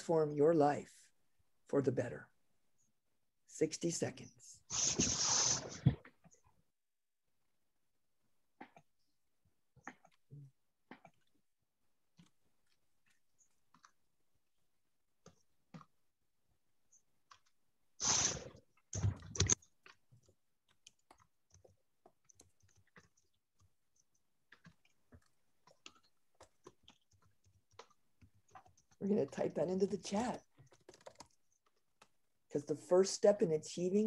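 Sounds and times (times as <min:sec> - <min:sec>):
computer keyboard typing: 0:19.0 - 0:32.1.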